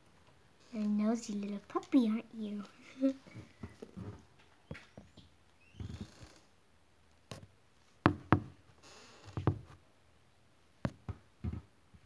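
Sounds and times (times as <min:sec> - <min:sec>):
sharp knocks and bumps: 0:08.1 - 0:08.6, 0:09.4 - 0:09.8.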